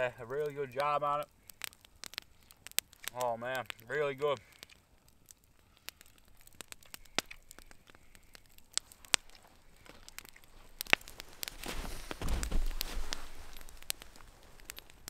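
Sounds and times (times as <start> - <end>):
campfire crackling: 0.0 - 15.0
sharp fire pops: 0.0 - 15.0
rustling noise: 8.9 - 15.0.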